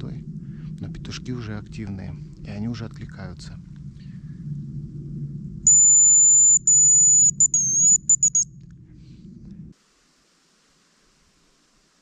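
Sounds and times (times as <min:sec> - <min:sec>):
low steady rumble: 0:00.0 - 0:09.8
bird decoy whistle: 0:05.7 - 0:08.5.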